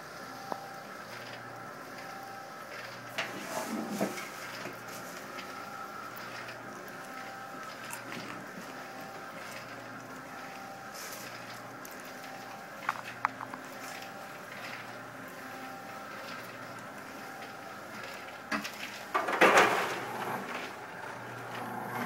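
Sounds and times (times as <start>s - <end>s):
popcorn machine stirrer humming: 0.0s - 22.0s
popcorn rattling into metal tray: 18.2s - 20.8s.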